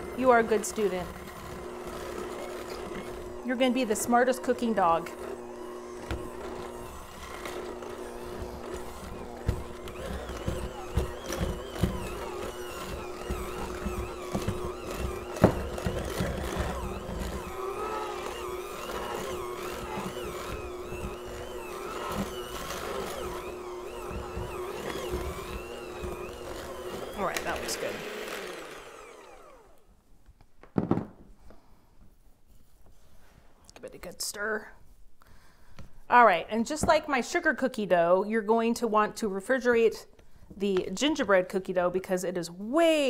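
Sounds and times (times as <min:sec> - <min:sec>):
electric hand mixer running: 0:00.0 - 0:29.9.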